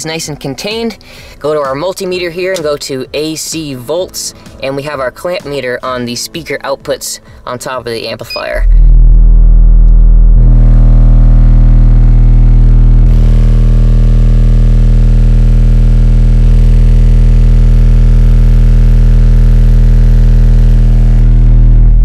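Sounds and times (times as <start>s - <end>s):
subwoofer deep test tone drone: 8.3s - 22.0s.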